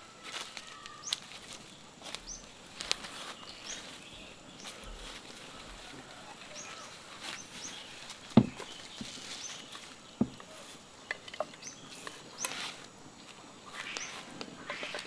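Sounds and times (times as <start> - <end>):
hollow wooden knocks: 8.3 - 9.2, 10.2 - 10.5.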